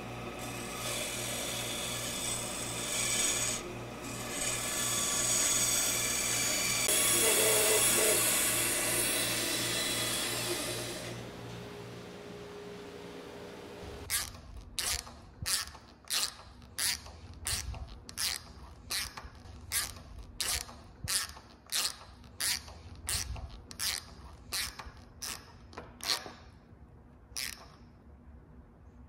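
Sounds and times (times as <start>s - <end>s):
workshop machine hum: 0.0s - 26.0s
screwdriver rasping into wood: 14.1s - 26.5s.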